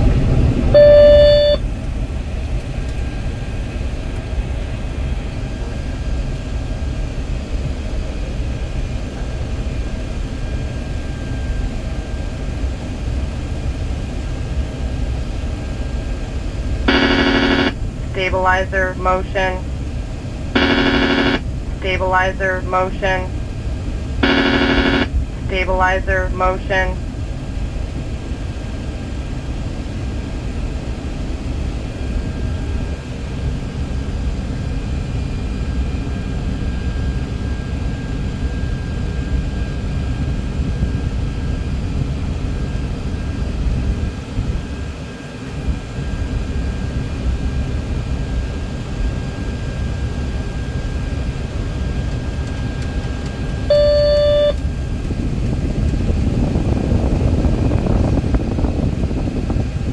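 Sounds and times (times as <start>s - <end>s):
jet engines rumbling: 0.0s - 33.0s
faint steady whines: 0.0s - 59.9s
electronic cockpit chime: 0.8s - 1.6s, 16.9s - 19.6s, 20.6s - 23.3s, 24.2s - 27.0s, 53.0s - 54.6s.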